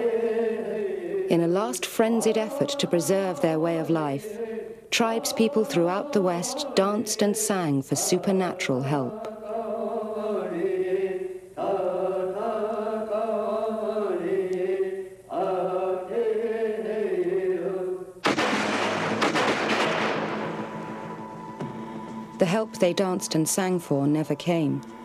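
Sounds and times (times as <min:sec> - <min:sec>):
person chanting: 0:00.0 - 0:18.0
loud crackling noise burst: 0:18.2 - 0:21.3.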